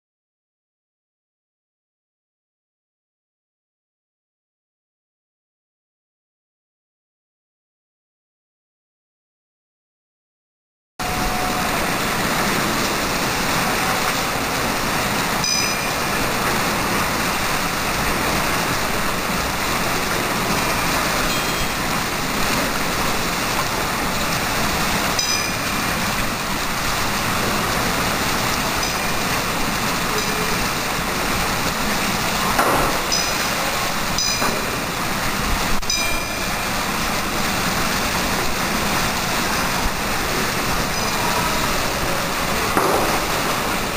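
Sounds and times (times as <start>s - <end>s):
water jets splashing into basin: 11.0s - 43.9s.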